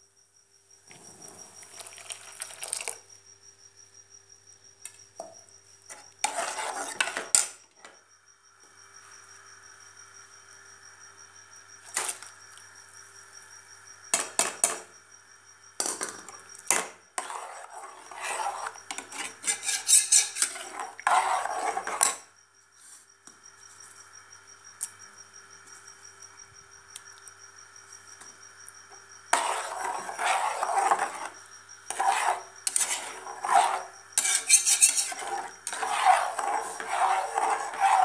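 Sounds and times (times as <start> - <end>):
metal spatula scraping metal bowl: 5.9 - 7.4, 17.2 - 22.2, 29.3 - 38.0.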